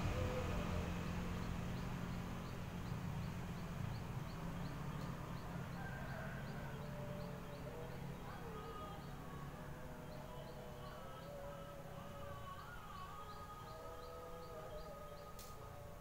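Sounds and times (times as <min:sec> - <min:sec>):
low steady rumble: 0:00.0 - 0:12.6.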